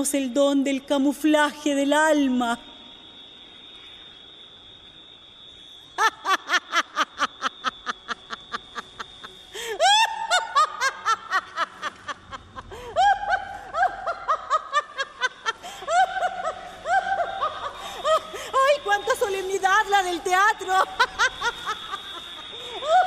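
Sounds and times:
woman laughing loudly: 6.0 - 18.9, 20.3 - 23.0.

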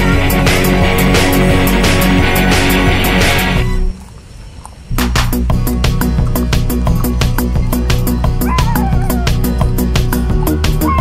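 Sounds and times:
loud music with drum beat: 0.0 - 3.8, 5.0 - 11.0.

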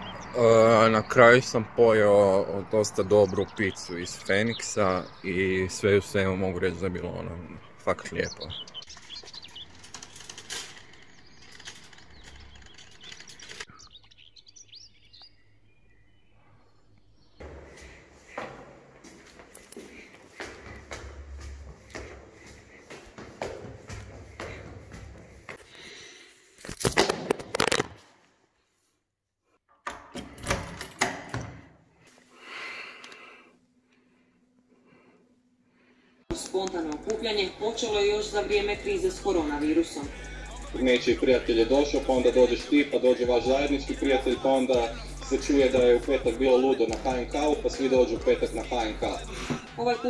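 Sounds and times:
faint street ambience: 0.0 - 25.8, 36.3 - 50.0
small birds chirping: 0.0 - 26.3
keys jingling: 8.9 - 13.7, 19.5 - 20.2
key clicking in door lock: 10.0 - 13.7
phone handling rustling and thumps: 26.6 - 28.0.

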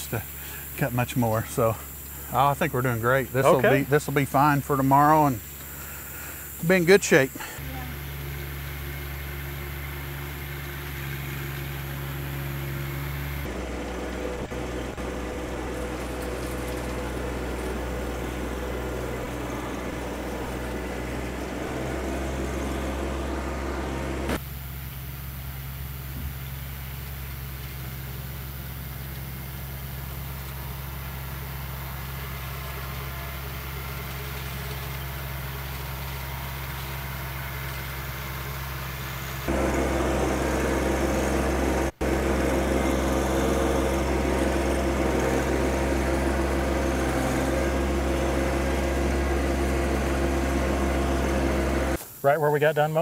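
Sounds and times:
tractor engine running: 0.0 - 53.0.

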